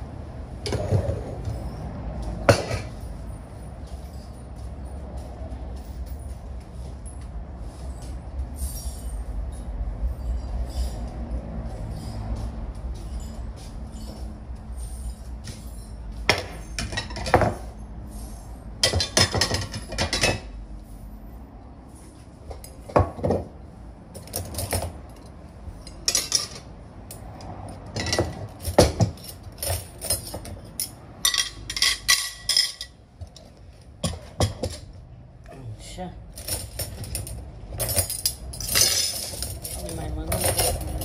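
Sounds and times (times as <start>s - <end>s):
dishes and cutlery clinking: 2.4s - 3.0s, 18.8s - 20.5s, 25.9s - 26.7s, 27.7s - 33.0s.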